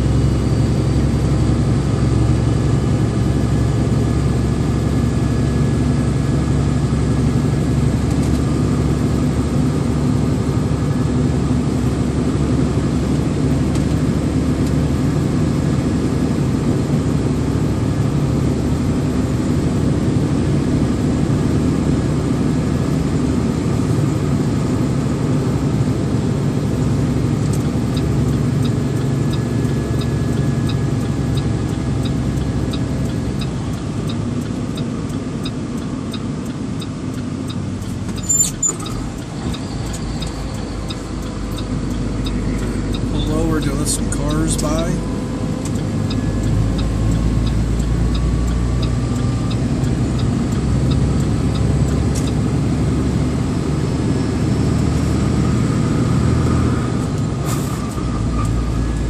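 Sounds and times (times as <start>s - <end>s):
road noise: 0.0s - 59.0s
vehicle engine running: 0.0s - 59.0s
light ticking: 27.4s - 52.8s.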